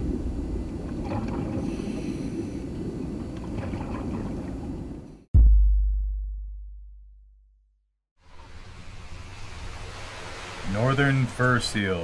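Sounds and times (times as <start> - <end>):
underwater rumble: 0.0 - 5.3
deep boom: 5.3 - 7.8.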